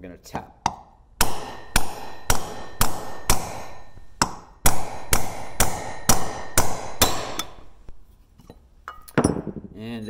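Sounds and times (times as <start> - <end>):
hammer tapping metal punch: 0.6 - 8.0.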